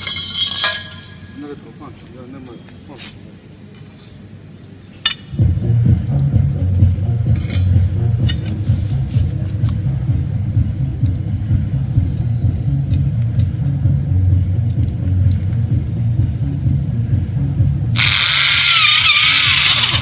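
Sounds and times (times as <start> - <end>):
steady low rumble: 5.3 - 20.0
electric drill drilling into metal: 18.0 - 20.0.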